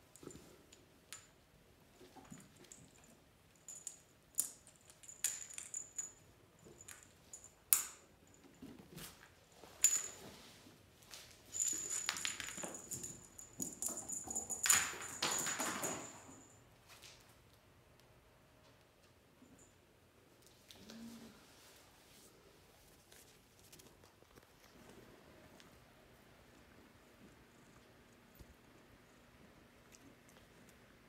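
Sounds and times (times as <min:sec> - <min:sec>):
kittens playing with toys: 0:00.1 - 0:16.5
small bell jingle: 0:03.0 - 0:08.4, 0:09.8 - 0:10.2, 0:11.5 - 0:16.6.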